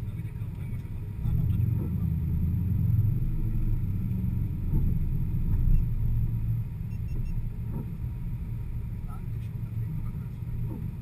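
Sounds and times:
car engine running at low speed: 0.0 - 11.0
faint short beeps: 6.9 - 7.4.

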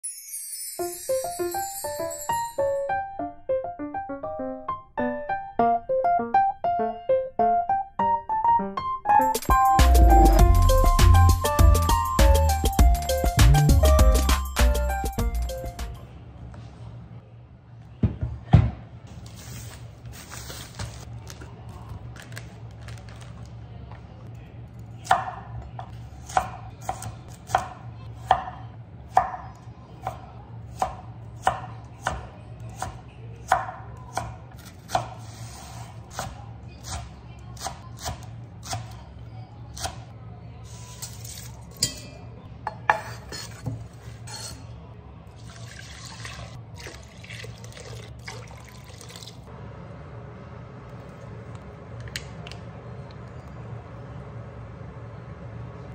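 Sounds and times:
water pouring into a pot: 45.4 - 49.5.

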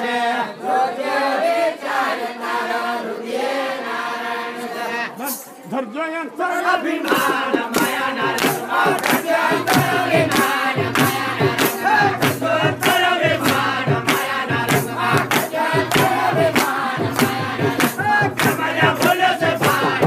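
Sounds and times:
voices singing together: 0.0 - 20.0
percussion beat: 5.2 - 5.7, 6.8 - 20.0.

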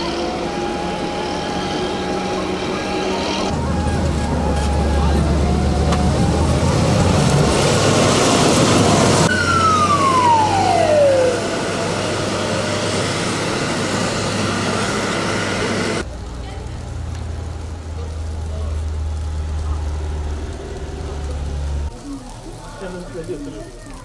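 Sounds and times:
siren-like falling whine: 0.0 - 16.0
diesel engine running: 0.0 - 22.0.

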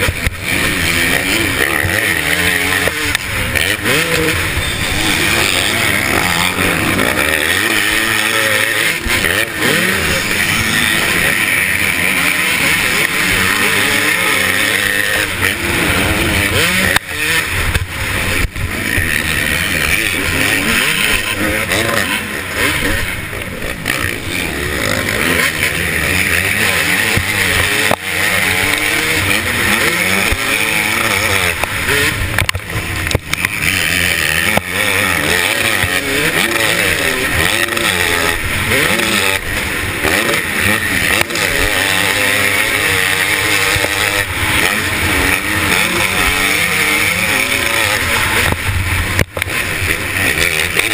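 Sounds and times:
motocross engine revving: 0.0 - 50.9.

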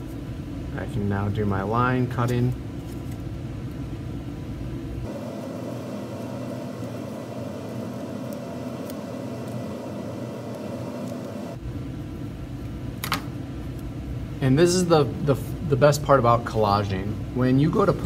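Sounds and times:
scissors cutting paper: 8.2 - 9.7.

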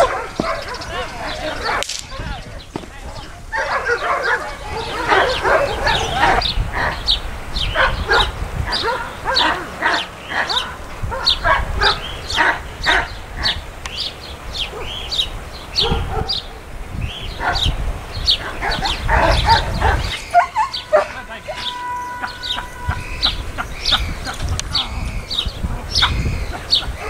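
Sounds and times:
dog barking and yipping: 0.0 - 1.9, 3.4 - 7.1, 7.7 - 13.6, 15.8 - 16.5, 17.4 - 17.7, 18.4 - 24.8.

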